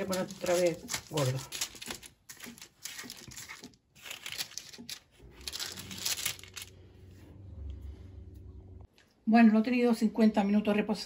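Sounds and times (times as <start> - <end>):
baking paper crinkling: 0.0 - 6.8
low steady hum: 4.9 - 10.6.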